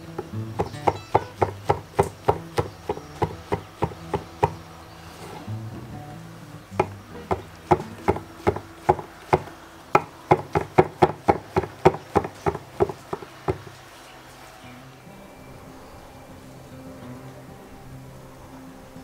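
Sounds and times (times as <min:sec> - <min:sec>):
knife chopping on wooden board: 0:00.6 - 0:04.6, 0:06.8 - 0:13.8.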